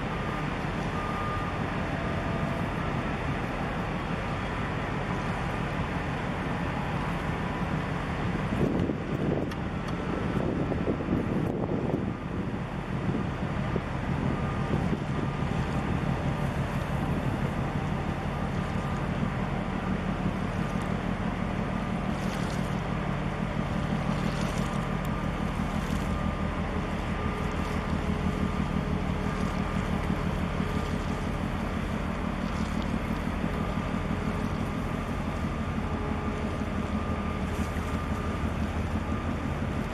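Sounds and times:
boat engine drone: 0:00.0 - 0:39.9
faint whine: 0:00.0 - 0:39.9
wind on microphone: 0:08.5 - 0:17.6.

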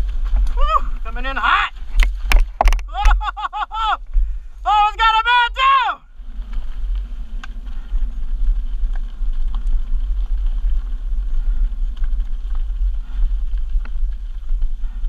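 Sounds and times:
clicks and rattles from bike: 0:00.0 - 0:01.1, 0:01.8 - 0:03.6, 0:06.3 - 0:15.0
wind on microphone: 0:00.0 - 0:03.4, 0:06.0 - 0:15.0
tyres crunching over gravel: 0:00.0 - 0:15.0.

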